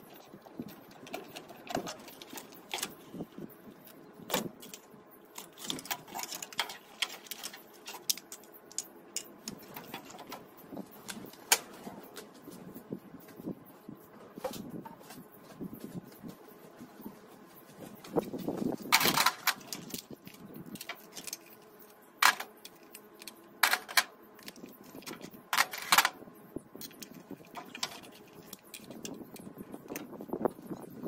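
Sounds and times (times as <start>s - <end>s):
plastic box rattling clatters: 18.1s - 21.6s, 22.2s - 26.2s.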